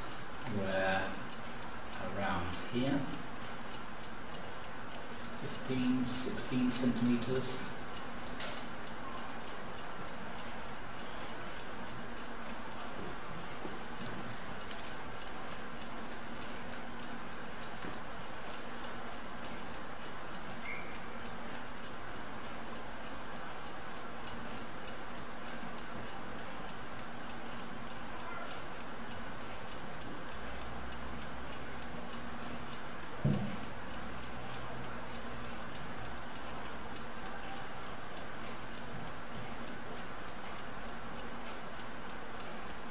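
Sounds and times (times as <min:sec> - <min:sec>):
mechanical clock ticking: 0:00.0 - 0:42.9
low thump: 0:33.2 - 0:33.6.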